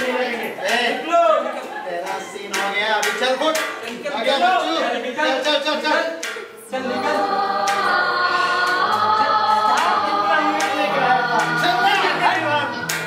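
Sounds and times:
voices singing long held notes: 0:06.7 - 0:13.0.

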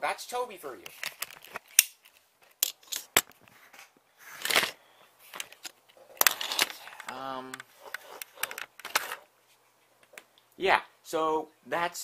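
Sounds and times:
rustling scrape: 0:03.4 - 0:09.6.

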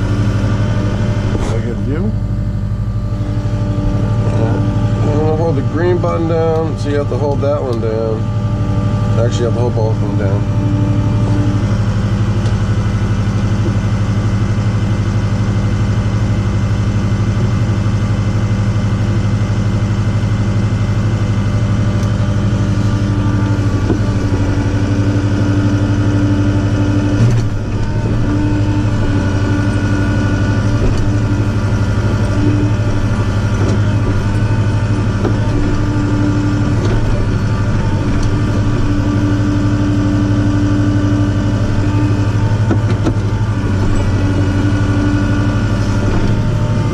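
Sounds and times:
hydraulics whining: 0:00.0 - 0:46.9
tractor diesel engine running: 0:00.0 - 0:46.9
metal clunk: 0:30.6 - 0:36.0, 0:42.4 - 0:44.2.

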